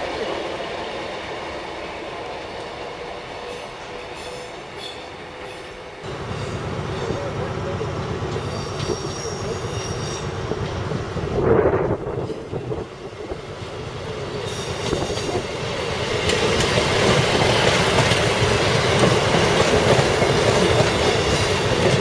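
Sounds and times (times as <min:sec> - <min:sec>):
diesel train passing: 0:00.0 - 0:22.0
wheels clacking over rail joints: 0:04.2 - 0:11.0, 0:14.4 - 0:22.0.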